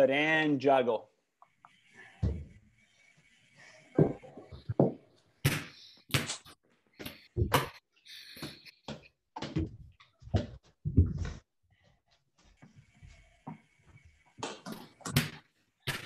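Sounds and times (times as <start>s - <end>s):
soccer balls thudding: 2.2s - 2.5s, 4.0s - 6.4s, 8.9s - 11.4s.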